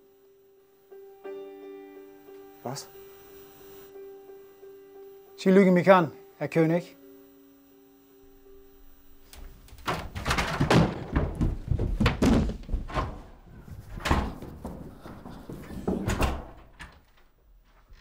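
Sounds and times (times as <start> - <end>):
heavy thuds and slams: 9.8 - 16.8.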